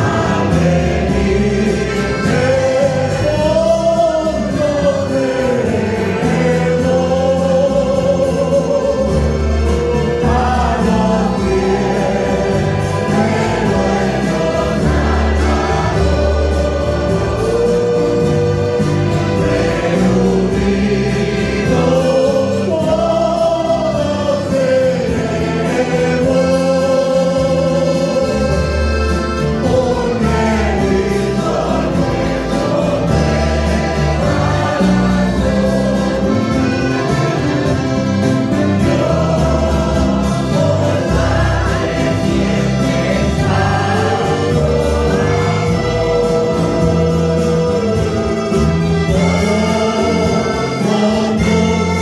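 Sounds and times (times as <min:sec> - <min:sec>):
accordion: 0:00.0 - 0:52.0
acoustic guitars and mandolins: 0:00.0 - 0:52.0
choir singing a hymn: 0:00.0 - 0:52.0
double bass: 0:00.0 - 0:52.0.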